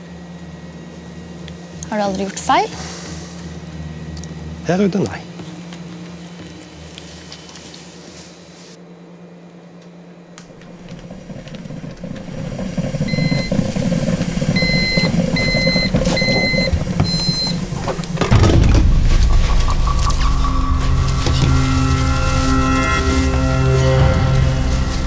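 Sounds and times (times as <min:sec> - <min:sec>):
coffee maker gurgling: 0:10.5 - 0:18.2.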